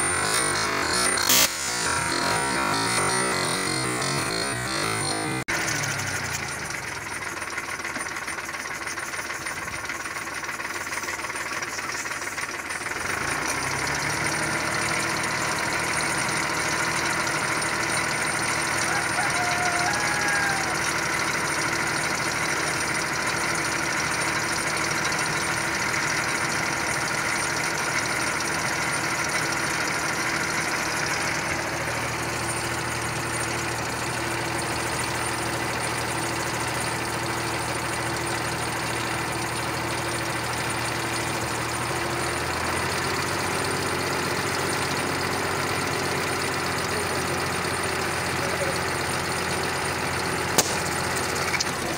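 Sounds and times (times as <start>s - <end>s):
deeper hum: 0.0s - 5.5s
tractor engine running: 0.0s - 51.9s.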